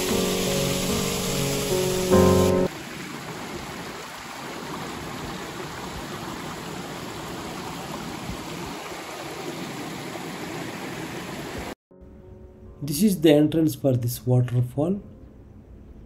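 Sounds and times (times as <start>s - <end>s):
mountain stream rushing over boulders: 0.0s - 11.8s.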